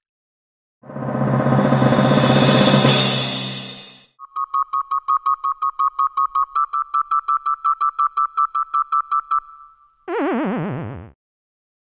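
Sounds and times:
fast synthesizer beeps: 10.1s - 11.1s
descending warbling game over tone: 10.1s - 11.2s.

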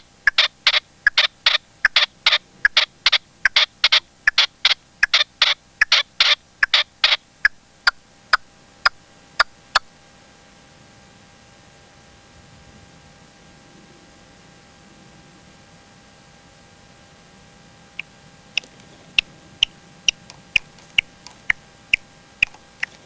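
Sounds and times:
partridge calling: 0.0s - 8.4s, 18.0s - 23.0s.

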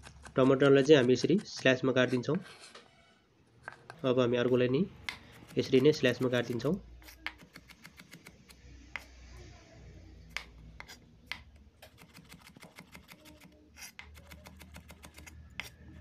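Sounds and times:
knife slicing tomatoes: 4.4s - 9.2s.

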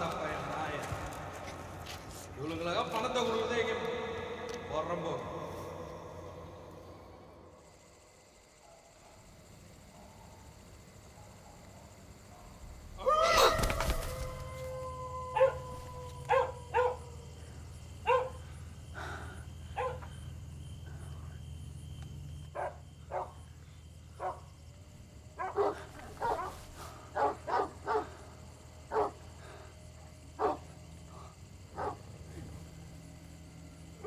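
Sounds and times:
dog barking: 9.9s - 12.6s, 15.3s - 17.3s, 18.0s - 18.4s, 19.7s - 20.2s, 22.5s - 23.4s, 24.2s - 24.5s, 25.4s - 28.2s, 28.9s - 29.3s, 30.4s - 30.7s, 31.7s - 32.1s.

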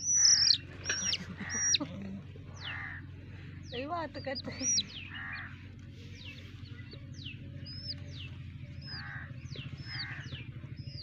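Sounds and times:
chick peeping: 0.0s - 1.9s, 4.1s - 11.0s
steady low hum: 0.0s - 11.0s.

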